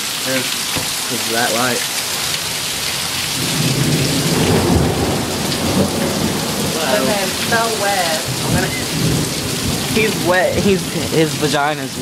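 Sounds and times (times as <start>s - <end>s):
heavy rain pouring: 0.0s - 12.0s
rolling thunder: 2.5s - 11.3s.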